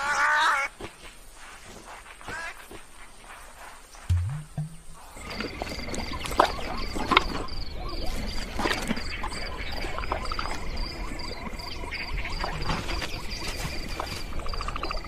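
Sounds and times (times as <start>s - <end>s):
steady insect drone: 4.7s - 15.0s.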